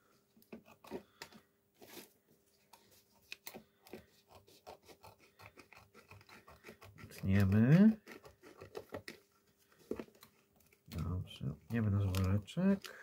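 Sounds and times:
plastic film rustling and crinkling: 9.6s - 13.0s.

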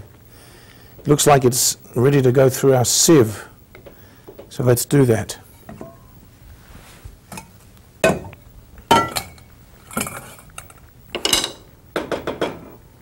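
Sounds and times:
pots and bowls knocking and clinking: 7.4s - 8.3s, 8.9s - 10.3s, 11.2s - 12.7s.

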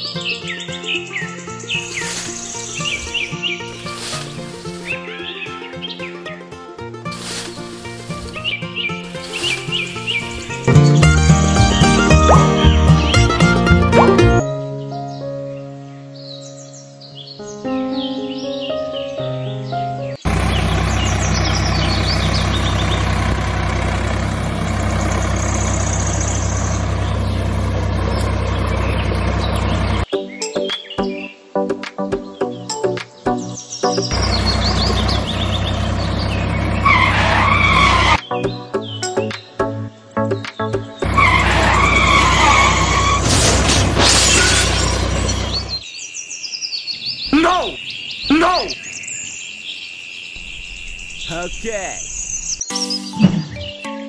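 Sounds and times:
tyres skidding and squealing: 7.1s - 14.4s, 20.3s - 30.1s, 34.1s - 38.3s, 41.0s - 45.8s
quick high chirps: 11.8s - 13.3s
tractor engine idling: 20.3s - 30.1s, 34.1s - 38.2s, 41.0s - 45.8s
shattering crash: 41.0s - 45.8s.

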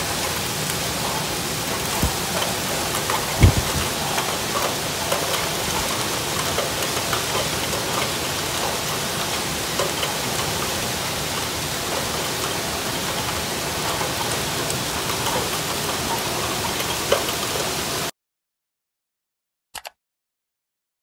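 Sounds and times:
heavy rain pouring: 0.0s - 18.1s.

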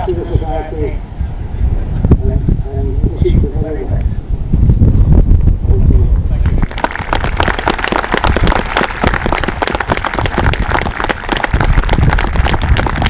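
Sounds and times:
people applauding: 6.4s - 13.0s.

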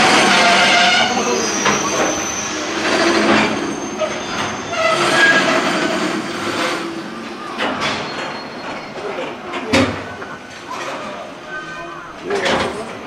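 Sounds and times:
high wheel squeal: 0.0s - 9.5s
train wheels rumbling on rail: 0.0s - 11.4s
wheels clattering over rail joints: 0.0s - 11.4s.

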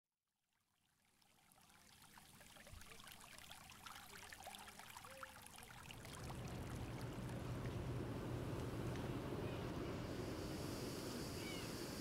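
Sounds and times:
water trickling and splashing: 0.6s - 9.1s
low hum: 6.0s - 12.0s.

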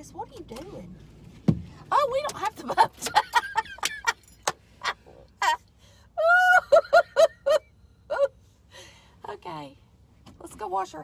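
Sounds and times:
woman laughing hard: 3.1s - 4.2s, 6.2s - 8.3s.

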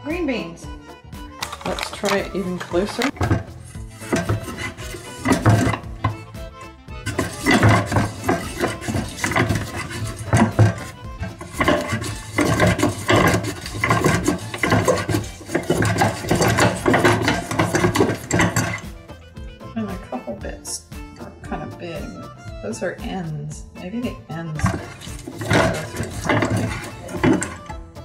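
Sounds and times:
jazz music: 0.0s - 28.0s
bean slicer scraping: 1.4s - 19.1s, 24.5s - 27.8s.

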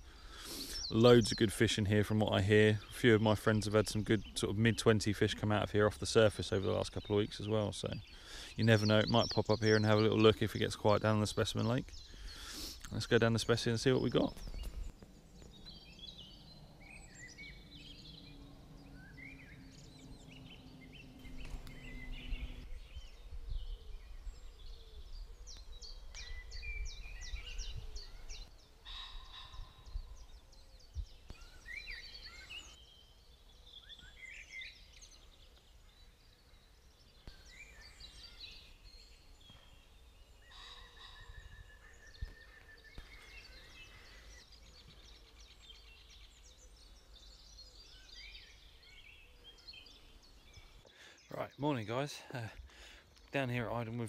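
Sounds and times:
songbirds chirping and trilling: 0.0s - 54.0s
wind rumble on microphone: 17.0s - 31.4s.

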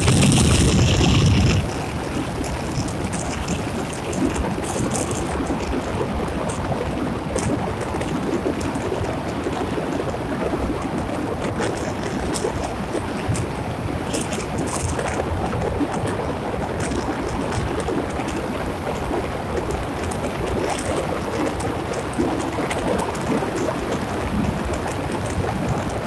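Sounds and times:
car road noise: 0.0s - 5.2s
rushing wind: 0.0s - 26.0s.

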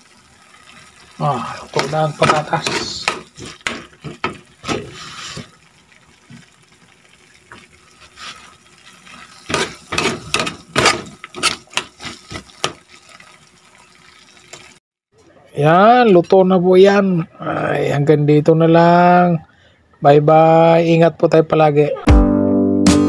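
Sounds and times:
metal spatula scraping frying pan: 9.2s - 12.8s.

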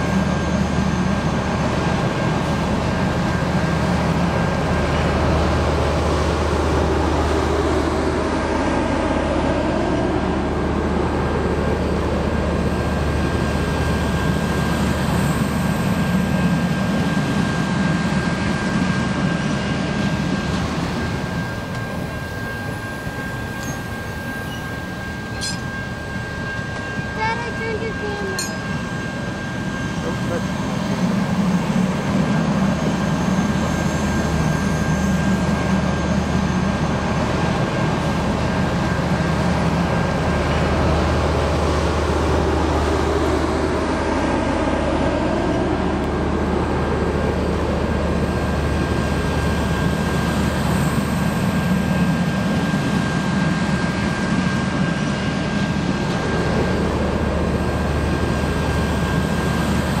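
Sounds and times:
train cars rumbling past: 0.0s - 60.0s
thin high whine: 12.5s - 40.6s.

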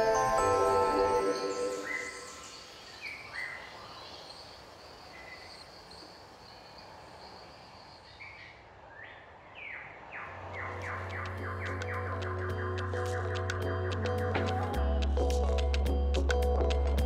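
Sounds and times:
faint outdoor hiss: 0.0s - 12.4s
birds chirping: 0.0s - 14.7s.

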